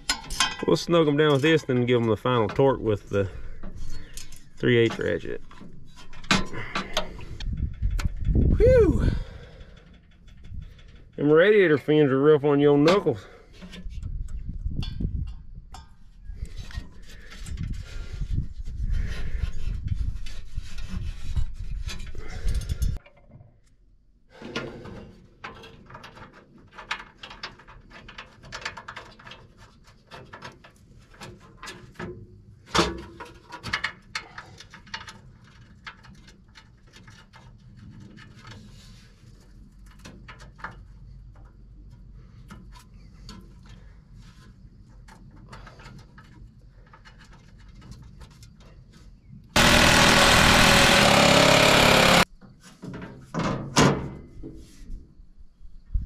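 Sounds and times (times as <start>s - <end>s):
scraping against microphone: 16.2s - 23.0s.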